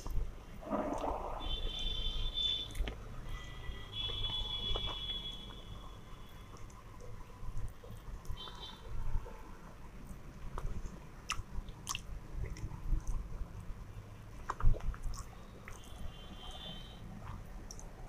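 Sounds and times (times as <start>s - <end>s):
chewing and wet mouth smacks: 2.7s - 3.6s, 10.1s - 16.6s, 17.2s - 18.0s.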